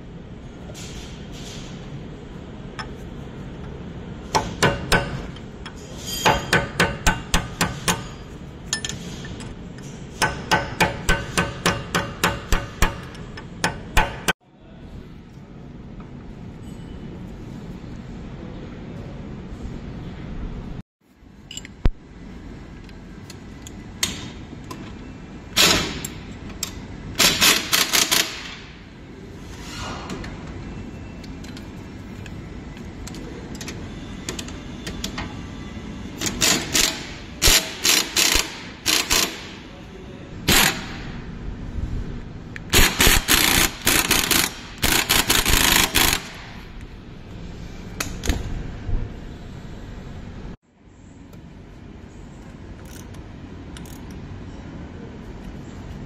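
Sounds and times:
impact wrench hammering: 4.3 - 5.4, 6.2 - 8.9, 10.1 - 14.3, 36.2 - 39.6, 42.7 - 46.6.

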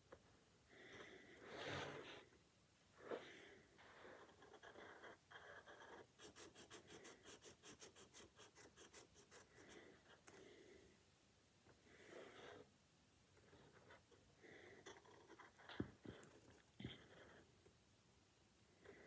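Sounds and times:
pencil scratching on paper: 3.9 - 10.4, 13.4 - 17.6.

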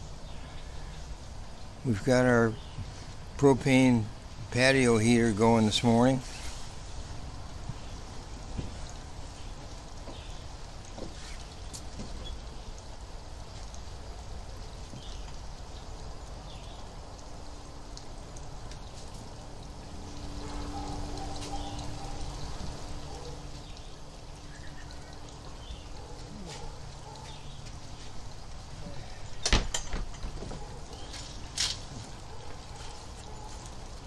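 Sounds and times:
steady hiss: 0.0 - 34.0
distant lawn equipment engines: 16.3 - 34.0.

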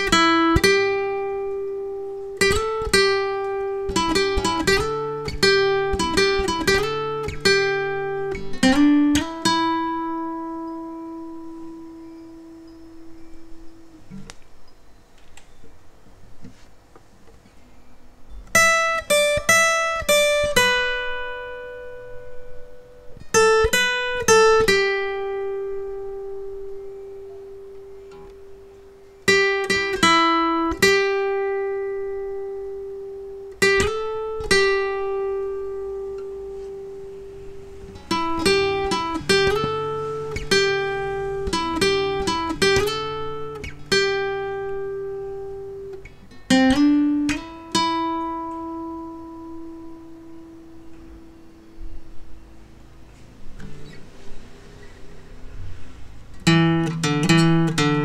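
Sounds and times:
acoustic guitar melody: 0.0 - 58.0.

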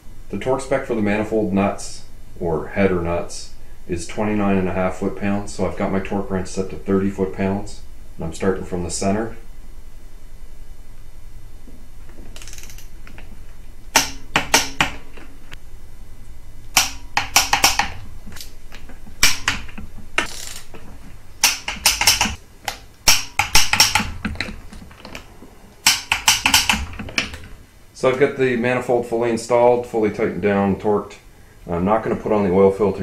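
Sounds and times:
steady low hum: 0.0 - 33.0
ratchet wrench clicking: 12.4 - 12.9, 16.8 - 18.5, 19.2 - 20.7, 21.4 - 22.4, 23.1 - 24.2, 25.8 - 27.3.

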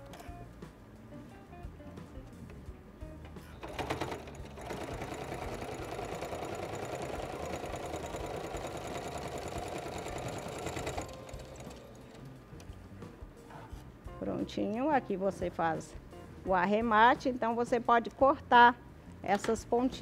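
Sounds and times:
sewing machine stitching: 3.6 - 12.2.

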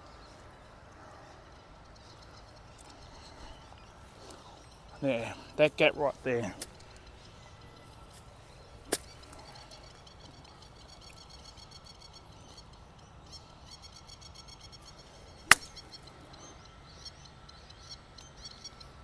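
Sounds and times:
chirping: 0.0 - 19.0
golf iron striking ball: 8.8 - 9.4, 15.3 - 16.1.

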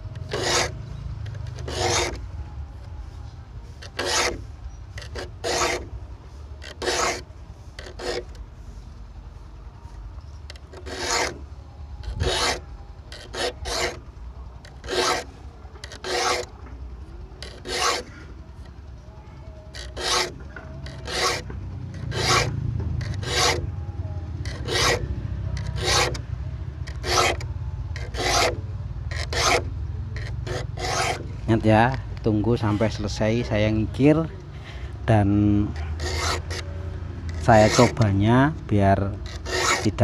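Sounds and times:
file scraping saw teeth: 0.2 - 2.2, 3.8 - 4.4, 5.0 - 5.9, 6.6 - 8.4, 10.5 - 11.4, 12.0 - 14.1, 14.7 - 16.5, 17.4 - 18.7, 19.7 - 23.7, 24.4 - 26.2, 26.8 - 31.3, 35.6 - 36.7, 37.3 - 38.0, 39.1 - 40.0.

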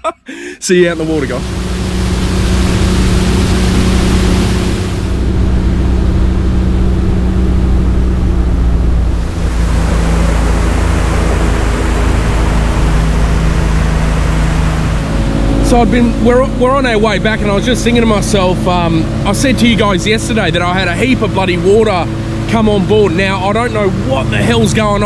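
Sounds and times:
outboard motor running: 0.7 - 25.0
water rushing: 0.7 - 25.0
rushing wind: 0.8 - 19.3.

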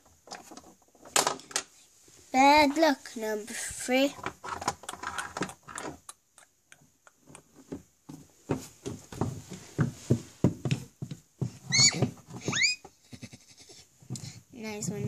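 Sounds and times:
child making clip-clop sounds: 14.1 - 15.0.

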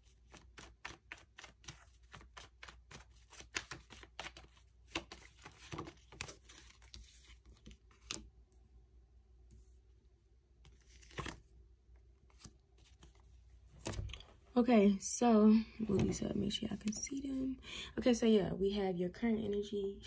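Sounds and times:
cards being shuffled: 0.1 - 8.3, 10.6 - 11.5, 12.2 - 13.2, 13.8 - 14.4.

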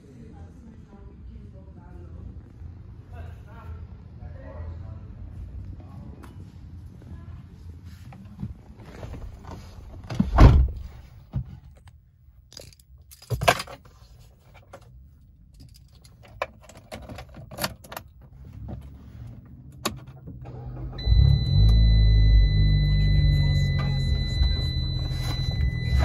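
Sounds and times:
car keys jangling: 14.7 - 18.2
car engine starting: 17.5 - 26.0
steady high tone: 21.0 - 26.0.

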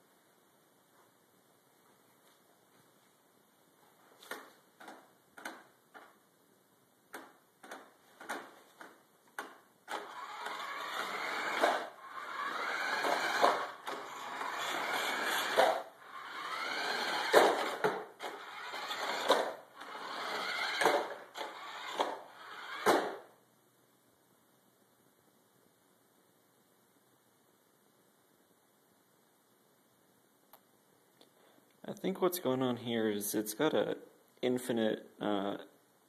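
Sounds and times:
small motors clicking and buzzing: 9.9 - 23.1
electric motor whining: 9.9 - 23.2.

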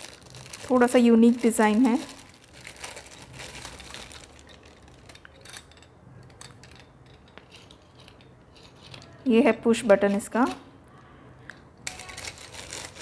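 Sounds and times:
plastic wrapping crinkling: 0.0 - 9.2, 11.8 - 13.0.

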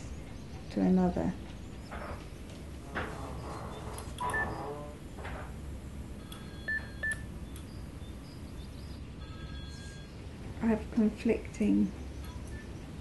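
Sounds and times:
low room hum: 0.0 - 13.0
electronic beeps: 3.6 - 4.9, 6.2 - 10.2.

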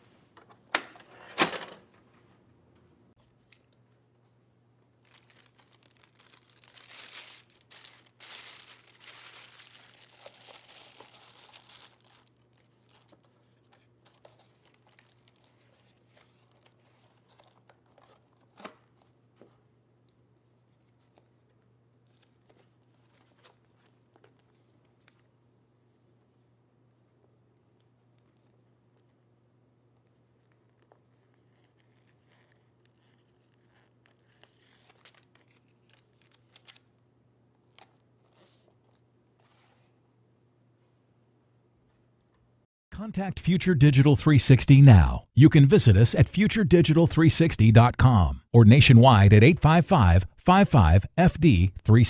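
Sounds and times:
plastic bag crinkling: 5.0 - 12.6.

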